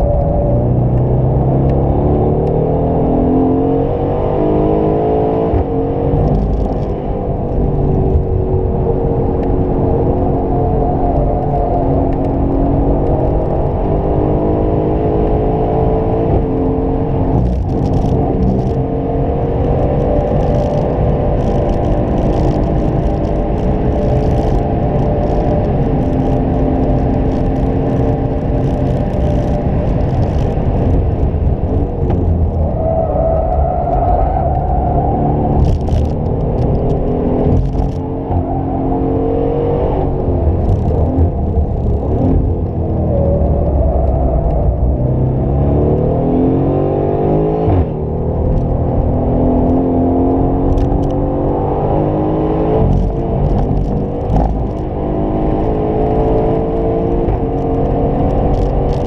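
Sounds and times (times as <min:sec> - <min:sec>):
car engine at full throttle: 0:00.0 - 0:59.0
exhaust cracks: 0:19.6 - 0:38.7, 0:52.8 - 0:55.0.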